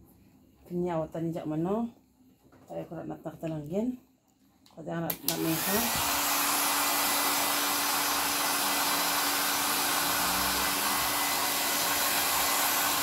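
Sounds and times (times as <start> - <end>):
hair dryer running: 5.1 - 13.0.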